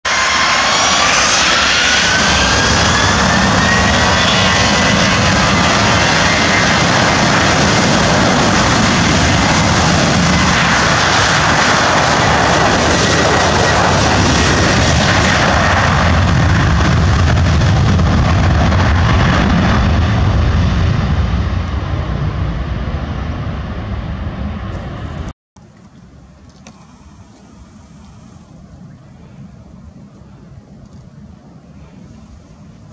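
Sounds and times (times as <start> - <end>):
jet engines roaring on takeoff: 0.0 - 32.9.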